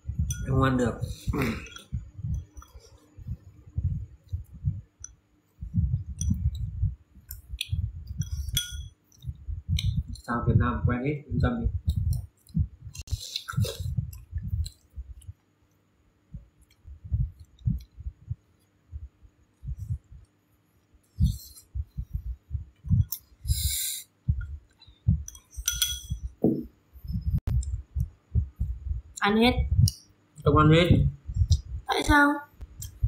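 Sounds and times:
chopsticks clinking: 8.2 - 9.2, 25.3 - 26.2.

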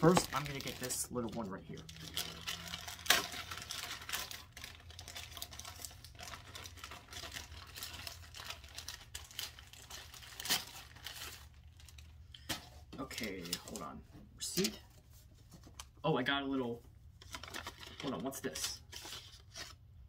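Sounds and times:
plastic mailer tearing: 0.0 - 13.8
plastic rustling and crackling: 0.0 - 16.0, 17.2 - 19.8.

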